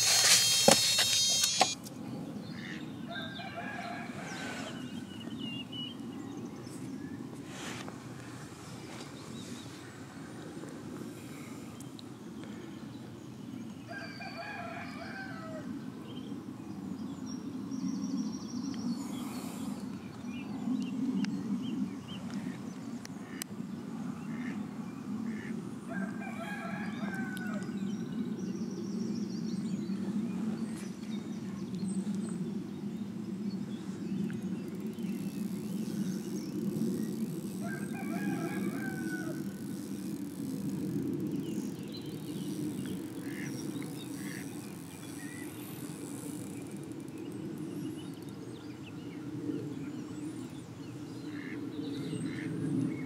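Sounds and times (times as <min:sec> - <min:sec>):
rooster crowing: 0:03.1 - 0:04.4, 0:13.9 - 0:15.7, 0:25.9 - 0:27.6, 0:37.6 - 0:39.6.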